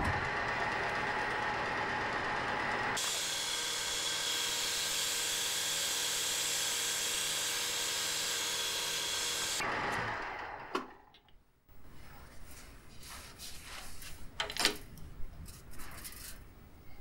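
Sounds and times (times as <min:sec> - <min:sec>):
metal lathe motor whine: 0:00.0 - 0:10.8.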